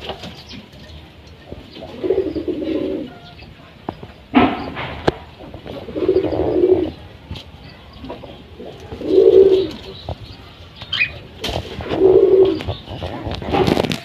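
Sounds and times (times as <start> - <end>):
pigeons cooing: 0.0 - 14.0.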